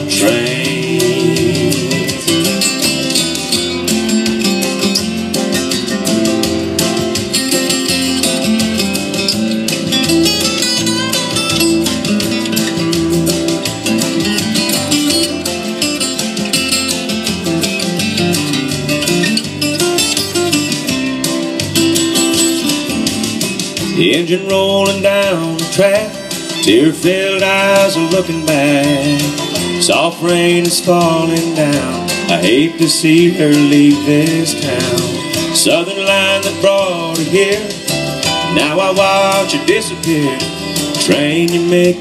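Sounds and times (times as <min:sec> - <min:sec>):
acoustic guitar strumming: 0:00.0 - 0:42.0
person singing country song: 0:00.0 - 0:42.0.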